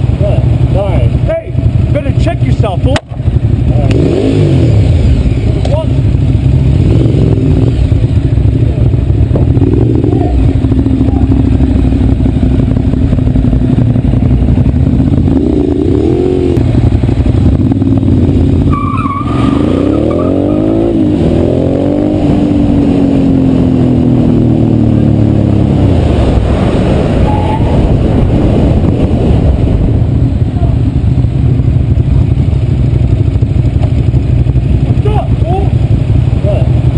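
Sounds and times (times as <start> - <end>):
motorcycle engine revving: 0.0 - 36.9
wind rush on microphone: 22.1 - 36.9.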